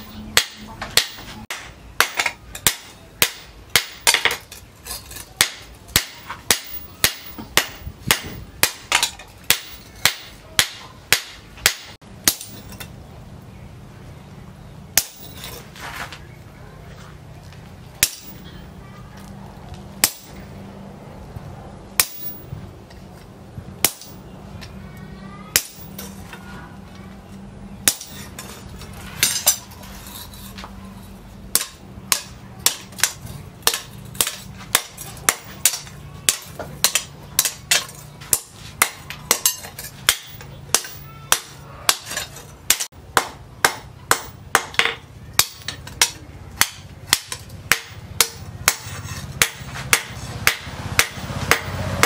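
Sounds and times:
hammer striking hot metal on anvil: 0.4 - 4.5, 5.4 - 12.9, 15.0 - 15.5, 18.0 - 18.5, 20.0 - 20.4, 22.0 - 22.4, 23.8 - 24.2, 25.5 - 26.1, 27.8 - 28.4, 31.5 - 52.0.

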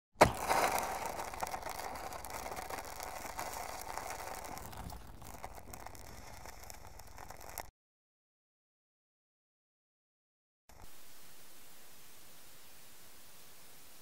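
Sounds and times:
fire crackling: 0.2 - 7.7.

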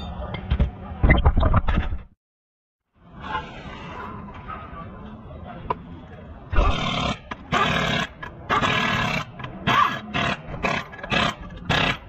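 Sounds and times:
pneumatic impact wrench bursts: 6.6 - 12.0.

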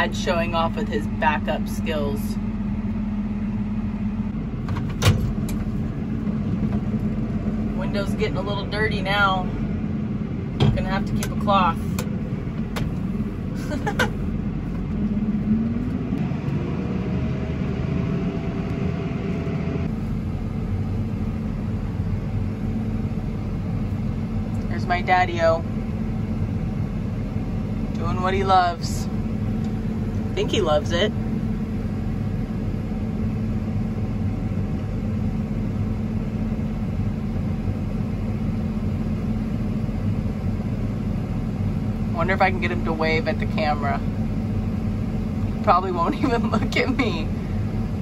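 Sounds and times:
tractor engine running: 0.0 - 48.0.

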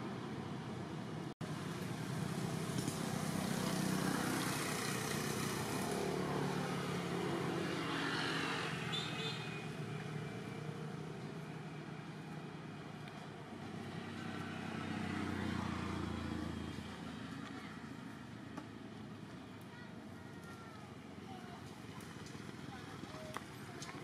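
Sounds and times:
motor vehicle passing: 1.9 - 19.6.

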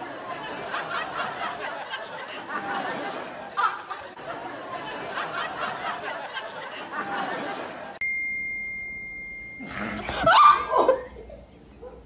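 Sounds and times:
studio audience laughing: 0.0 - 8.0
censor bleep: 8.0 - 10.1.

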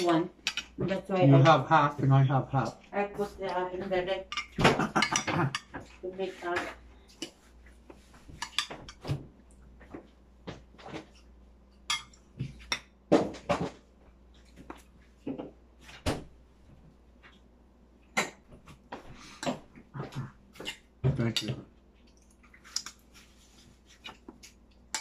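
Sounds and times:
cutlery and dishes clinking: 0.4 - 0.8, 4.3 - 5.9, 8.3 - 9.2, 11.8 - 12.9, 24.0 - 25.0.

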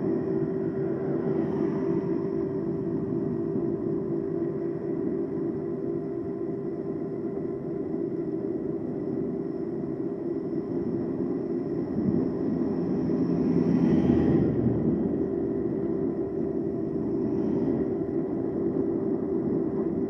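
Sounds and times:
road and wind rumble: 0.0 - 5.6, 10.7 - 20.0
faint whining tones: 0.0 - 20.0.

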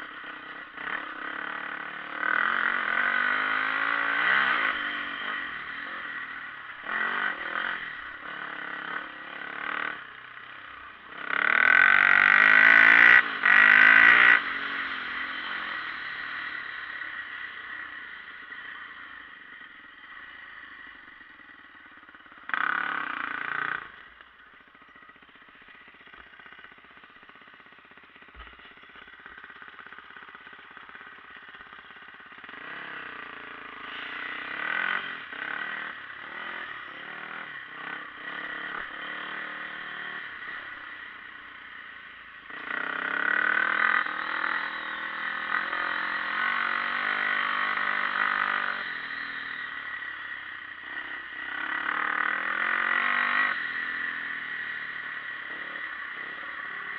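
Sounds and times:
dirt bike engine revving: 0.0 - 56.9.

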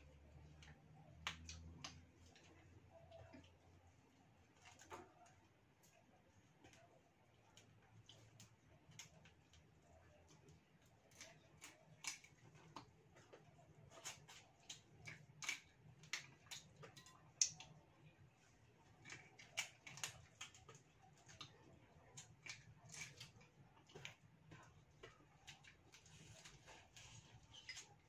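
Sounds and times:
crunching while eating: 7.5 - 17.8, 18.5 - 28.0.

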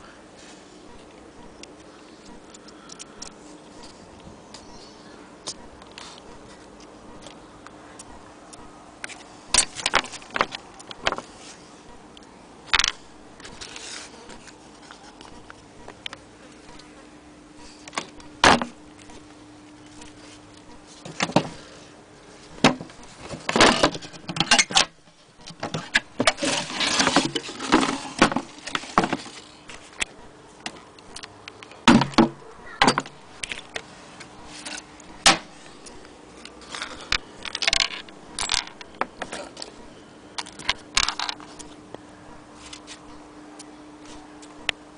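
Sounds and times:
faint steady hum: 0.0 - 44.9
handling taps clicks and scrapes: 5.4 - 16.9, 22.4 - 39.8, 40.4 - 41.9.

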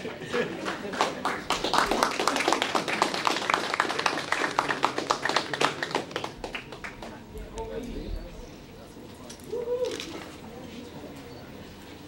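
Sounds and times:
audience applauding: 0.2 - 7.2.

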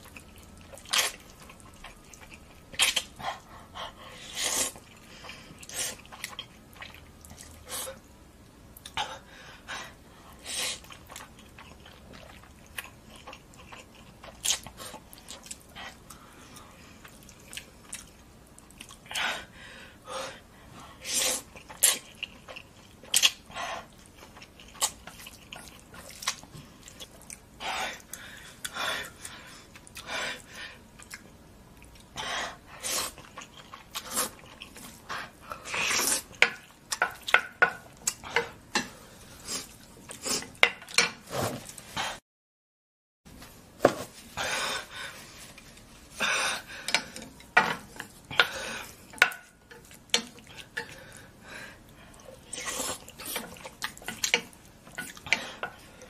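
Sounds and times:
chewing: 0.0 - 3.6, 4.7 - 8.0, 10.8 - 19.2, 21.4 - 30.1, 32.9 - 41.9, 46.8 - 56.0.

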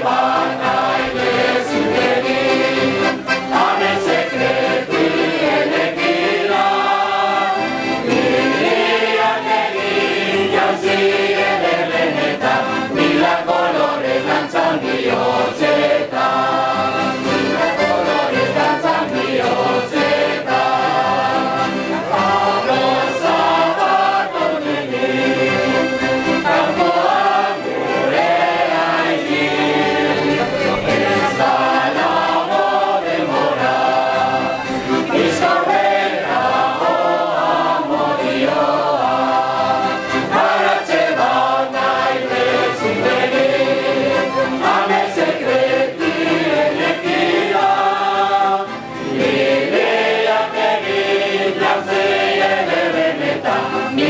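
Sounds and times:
accordion: 0.0 - 54.0
acoustic guitars: 0.0 - 54.0
group singing in chorus: 0.0 - 54.0.

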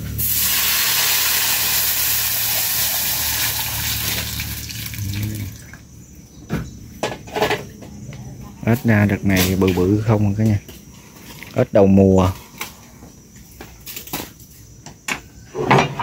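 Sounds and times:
water running: 0.2 - 5.8.

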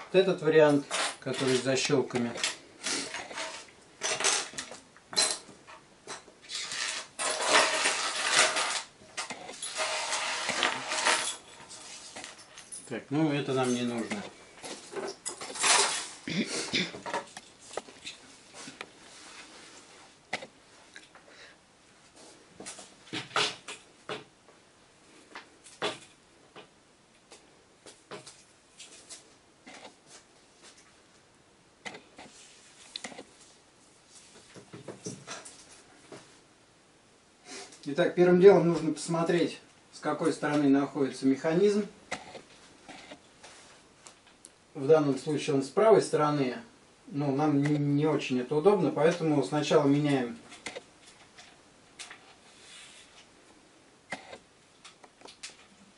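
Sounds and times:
parts scraping across table: 0.7 - 5.4, 6.4 - 12.5
small parts clattering on table: 0.7 - 12.9, 13.5 - 16.2.

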